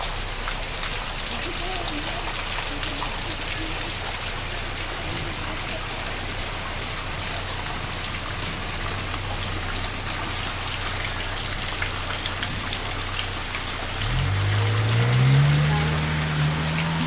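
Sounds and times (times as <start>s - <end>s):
heavy rain on leaves: 0.0s - 17.0s
water pouring from pipe spout: 0.0s - 17.0s
vehicle engine revving: 12.4s - 17.0s.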